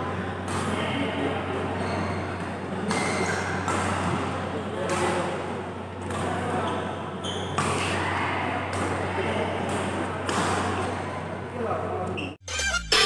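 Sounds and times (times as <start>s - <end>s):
shoe squeak: 1.8s - 3.6s, 6.6s - 7.8s, 12.1s - 13.0s
racket hitting shuttlecock: 2.4s - 4.2s, 4.8s - 5.4s, 6.0s - 6.6s, 7.5s - 11.1s.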